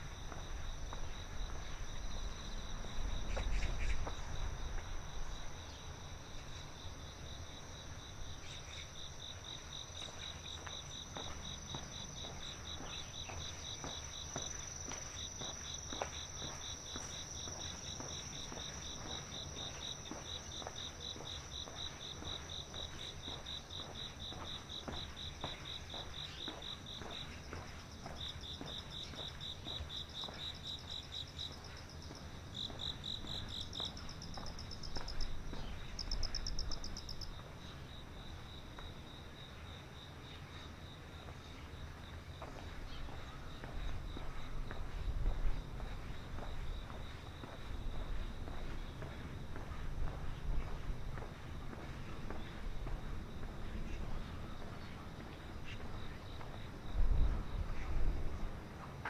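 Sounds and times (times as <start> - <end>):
insects chirping in trills: 0.0 - 58.8
higher-pitched insect trills: 0.3 - 38.0.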